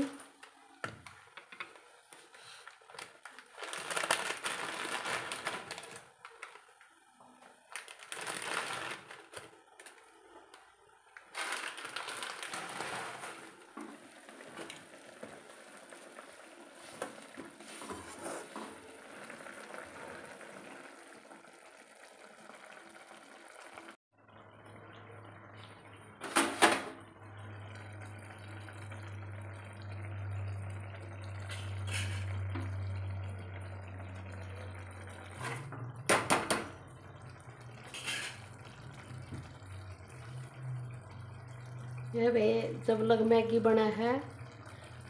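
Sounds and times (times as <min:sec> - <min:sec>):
plastic packet crinkling: 0:02.8 - 0:06.8, 0:07.6 - 0:10.1, 0:11.2 - 0:13.6.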